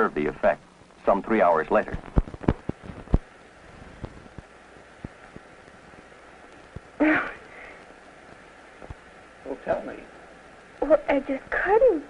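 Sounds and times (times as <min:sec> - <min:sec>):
film soundtrack hiss: 0:00.0 - 0:12.0
clicks and pops: 0:01.9 - 0:03.3.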